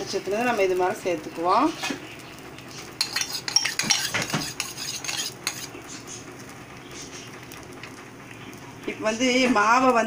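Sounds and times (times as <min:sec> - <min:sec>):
metal spoon clinking and scraping: 0:03.0 - 0:05.8.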